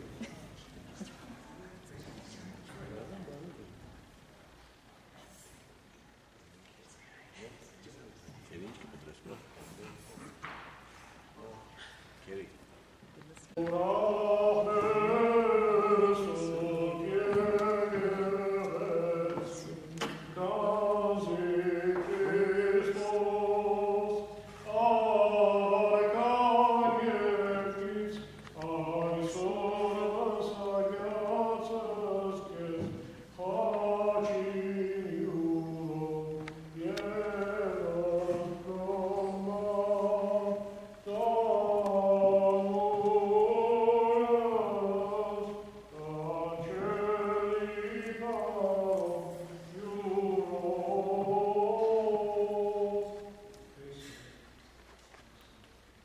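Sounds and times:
voices chanting a slow melody: 13.5 - 56.0.

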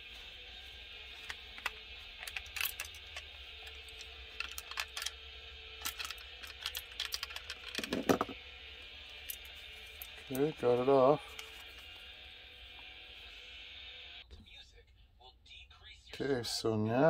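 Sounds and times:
small plastic parts clicking: 1.3 - 5.2, 5.8 - 8.4.

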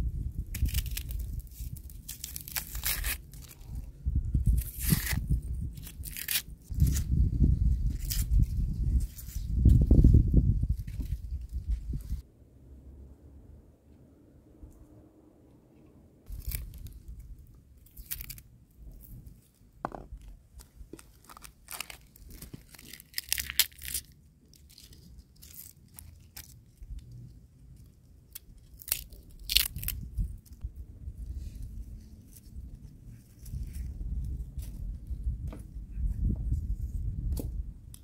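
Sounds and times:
garlic skins crackling and tearing: 0.3 - 3.8, 4.4 - 7.2, 7.8 - 9.4, 16.3 - 19.5, 20.2 - 27.2, 27.8 - 30.6.

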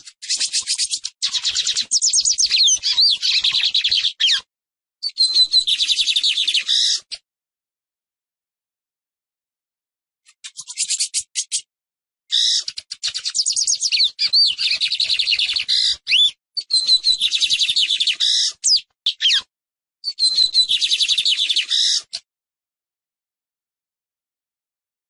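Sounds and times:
sliding bird whistles: 12.4 - 19.5, 20.1 - 22.0.

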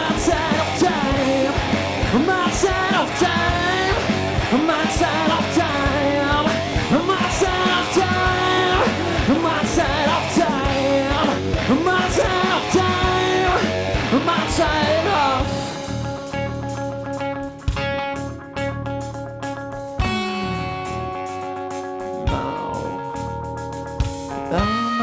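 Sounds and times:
sung and shouted vocals: 0.0 - 15.7
bass guitar: 0.0 - 25.0
drums: 0.0 - 25.0
electric guitar: 0.0 - 25.0.

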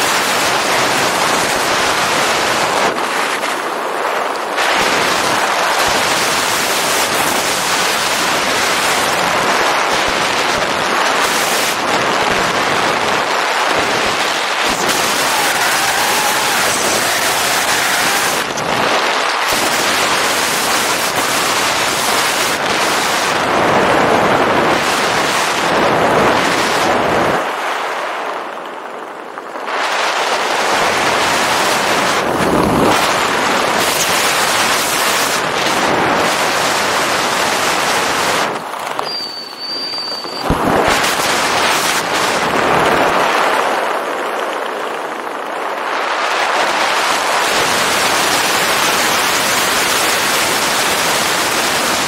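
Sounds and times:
wind rushing over microphone: 0.0 - 52.0
brief high beep: 39.0 - 40.5.

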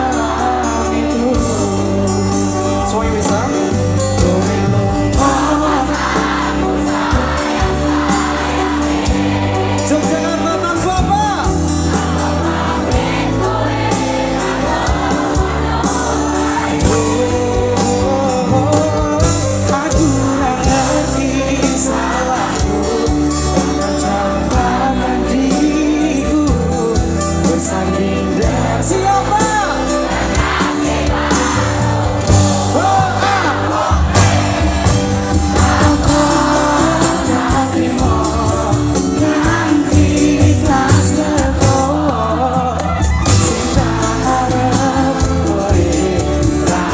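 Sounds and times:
live band playing pop song: 0.0 - 46.9
person singing: 16.8 - 29.7.

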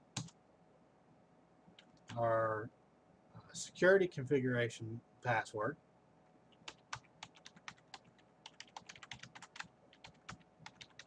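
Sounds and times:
keyboard typing: 0.2 - 0.4, 6.5 - 11.0.

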